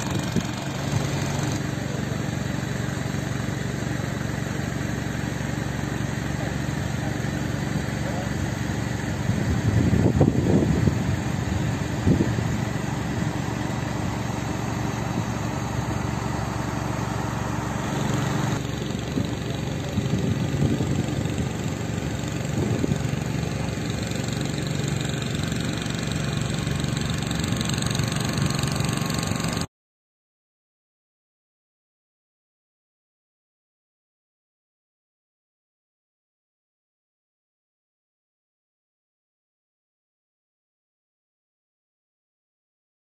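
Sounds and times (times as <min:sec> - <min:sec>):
engine idling: 0:00.0 - 0:29.7
outdoor noise: 0:00.0 - 0:29.7.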